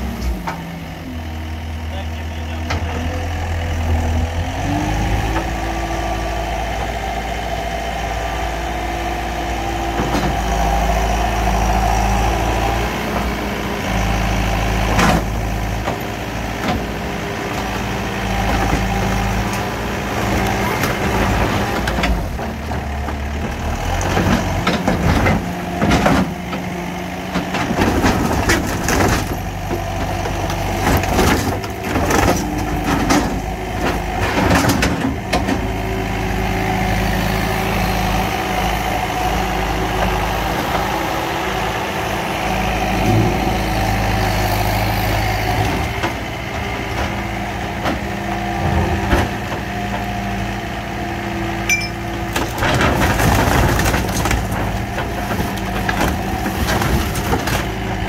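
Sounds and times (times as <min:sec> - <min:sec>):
diesel engine running: 0:00.0 - 0:58.0
metal crunching and banging: 0:13.2 - 0:36.3, 0:41.8 - 0:50.2, 0:51.7 - 0:58.0.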